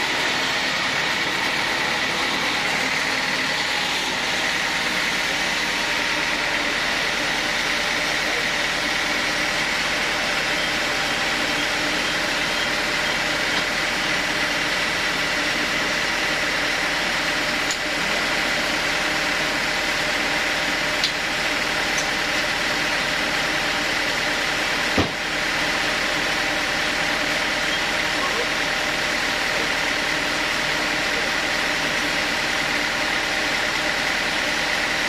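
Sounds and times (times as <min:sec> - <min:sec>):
band saw machine whine: 0:00.0 - 0:35.0
sharp knock: 0:25.0 - 0:25.2.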